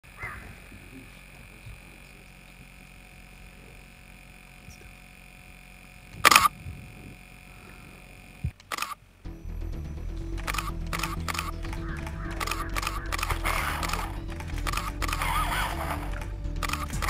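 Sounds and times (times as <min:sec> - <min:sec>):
camera shutter clicks: 0:06.2 - 0:06.5, 0:08.5 - 0:09.0, 0:10.4 - 0:17.0.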